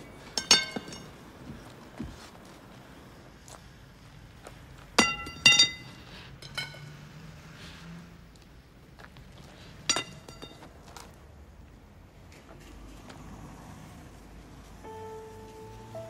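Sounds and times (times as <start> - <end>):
hard objects clinking: 0.3 - 1.2, 5.0 - 6.9, 9.9 - 10.7.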